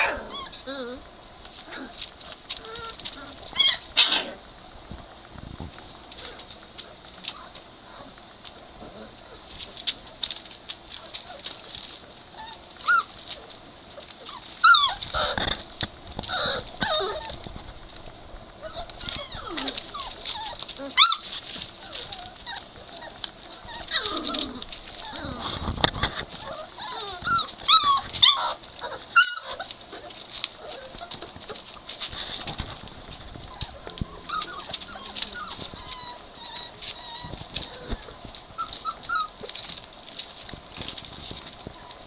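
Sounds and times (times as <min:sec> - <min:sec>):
puppies whimpering and squeaking: 0:00.0 - 0:04.5, 0:05.8 - 0:42.0
small paws scuffling: 0:00.0 - 0:42.0.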